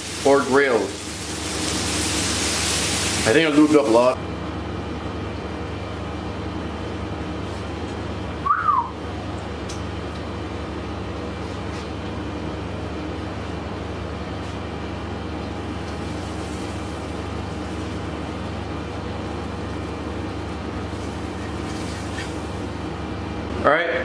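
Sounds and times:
butter sizzling on a hot grill: 0.0 - 4.1, 15.7 - 22.9.

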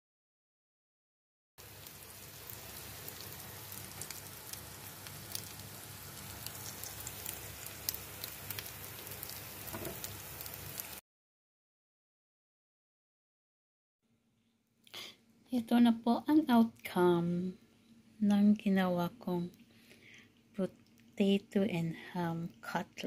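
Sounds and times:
patties sizzling in oil: 1.6 - 11.0, 18.8 - 23.0
small crackling pops: 3.1 - 5.6, 19.4 - 21.2.

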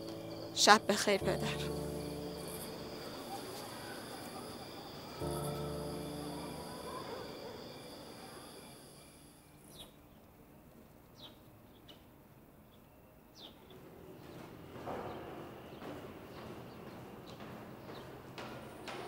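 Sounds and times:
crickets chirping: 0.0 - 10.0.

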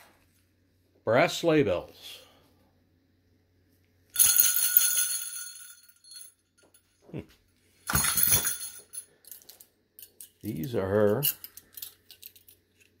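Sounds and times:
sleigh bells jingling: 4.2 - 6.3, 7.9 - 9.0.

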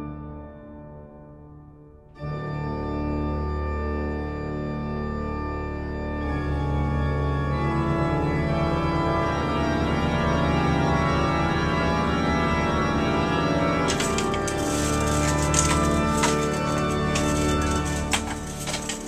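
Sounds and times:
organ playing held chords: 6.4 - 18.8.

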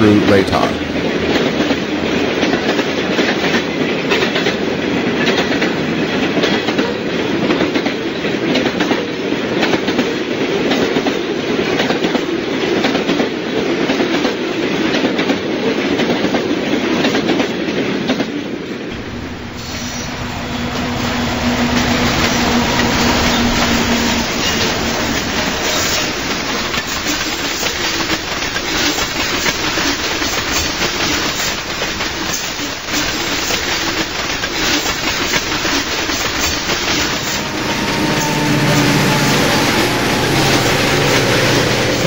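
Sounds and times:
model locomotive rumble and hum: 18.9 - 42.0
model train wheels clickety-clack: 19.6 - 37.1.

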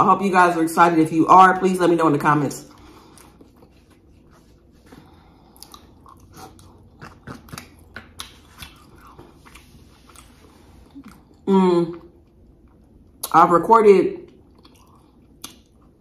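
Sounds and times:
close chewing: 2.7 - 11.4, 14.3 - 16.0
mouth clicks and smacks: 14.6 - 15.8.

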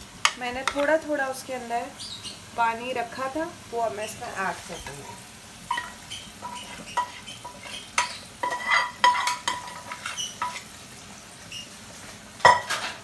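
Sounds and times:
frying sizzle: 0.0 - 13.0
steel bowl clinking on pan: 5.7 - 10.6, 12.4 - 13.0.

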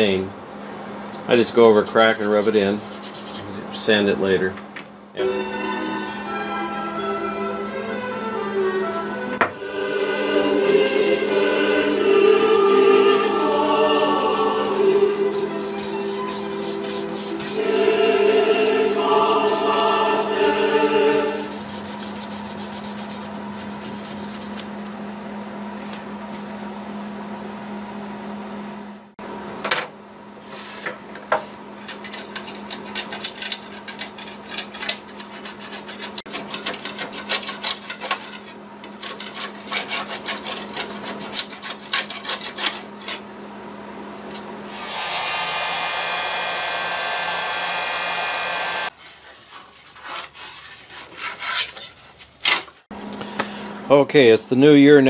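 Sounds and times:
steady low hum: 9.5 - 24.6, 43.4 - 48.9
hand tool rasping wood: 9.6 - 24.5, 32.9 - 43.2, 49.8 - 52.0
steady whir: 44.7 - 48.9.

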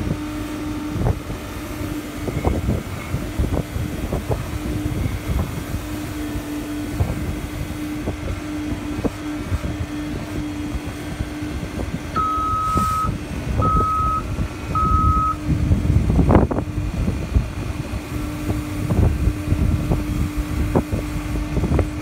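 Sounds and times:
diesel engine running: 0.0 - 22.0
back-up alarm beeps: 12.2 - 15.4.

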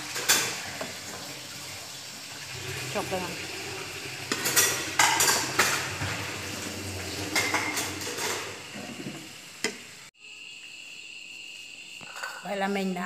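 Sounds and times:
food sizzling: 0.0 - 11.9
utensil scraping and clinking: 4.3 - 6.6, 7.2 - 9.8
insects chirring: 7.1 - 13.0.

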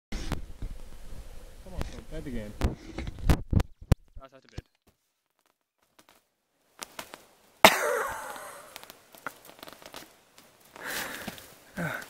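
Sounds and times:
person coughing: 7.7 - 8.6.

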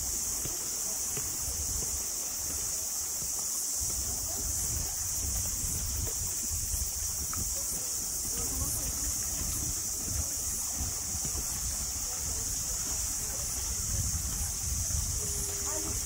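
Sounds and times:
high outdoor hiss: 0.0 - 16.0
wind on microphone: 3.7 - 16.0.

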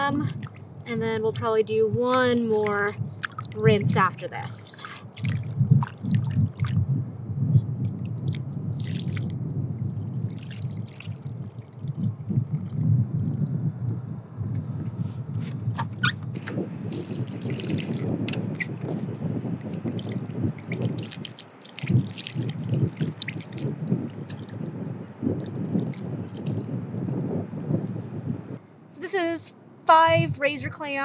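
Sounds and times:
water sloshing in metal bowl: 0.0 - 6.7, 9.9 - 12.0, 16.8 - 19.0, 19.6 - 26.8
water pouring into bowl: 8.8 - 12.9, 16.8 - 18.3, 19.6 - 27.6.

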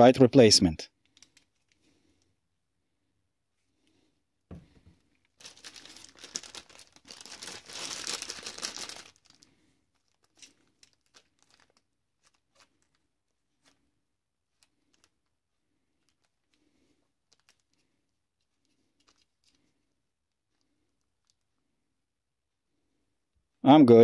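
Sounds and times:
knock: 4.5 - 4.9
packaging crinkling: 5.3 - 13.8, 14.5 - 21.6.

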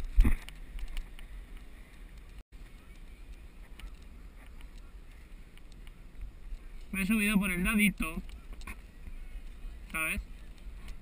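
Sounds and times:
bike clicks and rattles: 0.0 - 6.9
wind rumbling on microphone: 0.0 - 11.0.

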